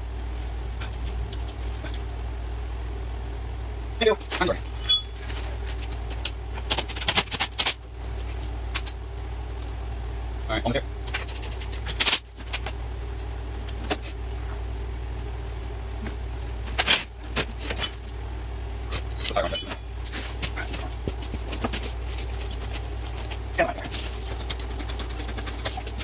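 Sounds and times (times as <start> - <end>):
steady low hum: 0.0 - 26.0
metal tools clinking: 4.6 - 5.4, 17.7 - 18.1, 19.2 - 20.4.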